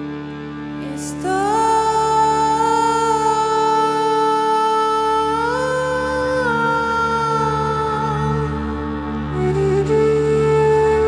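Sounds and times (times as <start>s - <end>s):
slow calm instrumental music: 0.0s - 11.0s
steady low drone: 0.0s - 11.0s.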